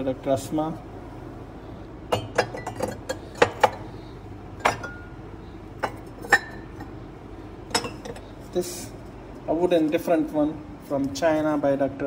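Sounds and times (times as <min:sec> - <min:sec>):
ceramic mugs clinking: 0:02.1 - 0:03.9, 0:04.5 - 0:07.0, 0:07.6 - 0:08.4.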